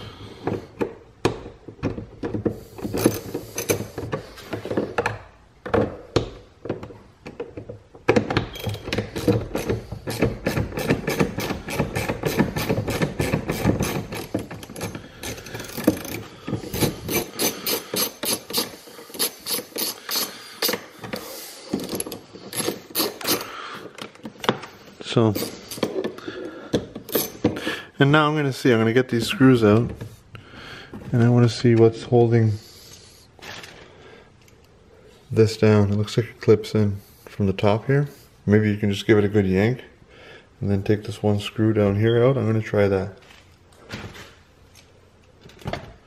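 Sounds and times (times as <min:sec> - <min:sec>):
screwdriver clicking and scraping: 0:01.8 - 0:05.2, 0:07.4 - 0:24.6, 0:25.3 - 0:27.5.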